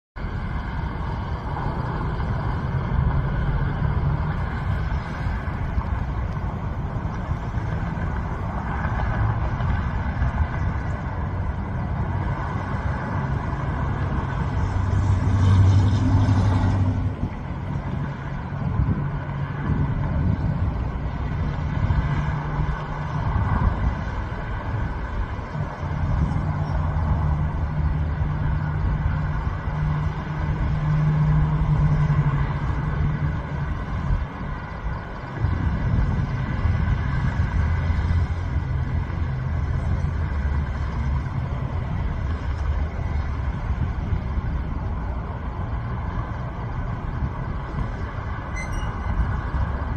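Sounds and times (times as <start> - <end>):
louder vehicle passing: 0.2 - 49.9
low hum: 0.2 - 49.9
road traffic rumble: 0.2 - 49.9.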